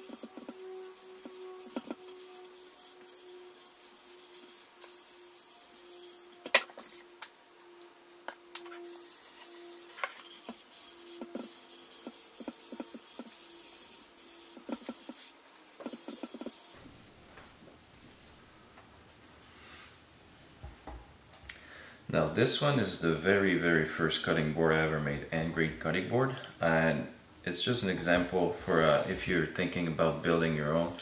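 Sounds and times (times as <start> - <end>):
paper towel rubbing wood: 0.0 - 7.1, 8.8 - 16.8.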